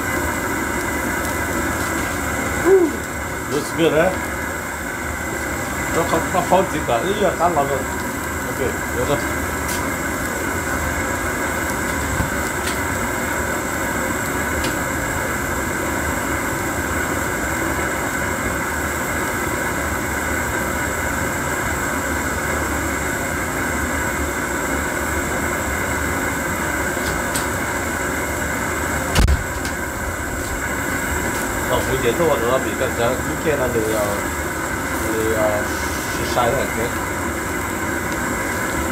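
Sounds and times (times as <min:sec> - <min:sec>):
camp stove burner roaring: 0:00.0 - 0:38.9.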